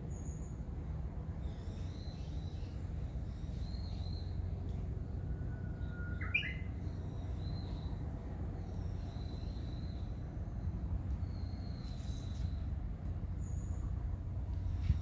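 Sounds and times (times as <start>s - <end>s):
low steady rumble: 0.0s - 15.0s
rising bird call: 5.2s - 6.8s
high thin bird calls: 6.1s - 6.7s.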